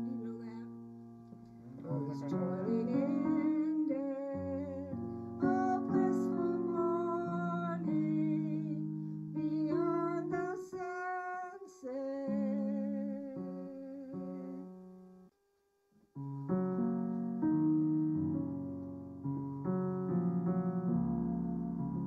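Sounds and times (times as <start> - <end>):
elderly woman singing a hymn: 0.0 - 0.7, 1.8 - 8.8, 9.4 - 14.8
piano accompaniment: 0.0 - 15.3, 16.2 - 22.0.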